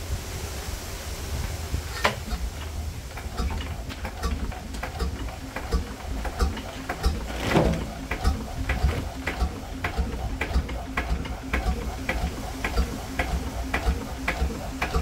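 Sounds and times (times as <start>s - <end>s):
diesel engine running: 1.6s - 15.0s
sharp engine knock: 4.2s - 15.0s.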